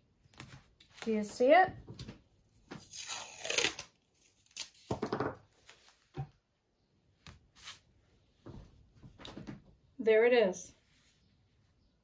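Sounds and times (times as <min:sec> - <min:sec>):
fabric rustling under hands: 0:10.7 - 0:12.0.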